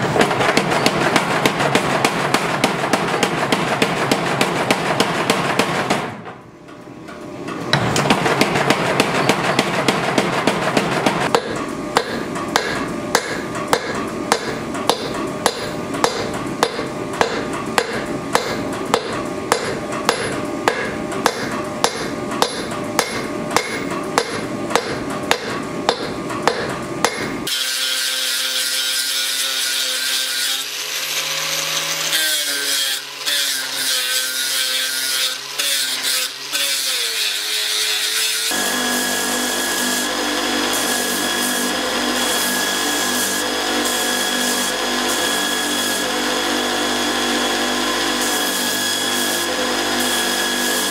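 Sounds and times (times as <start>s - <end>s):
power hammer striking steel: 0.0s - 6.4s, 7.7s - 30.6s
hand hammer striking anvil: 7.7s - 27.4s.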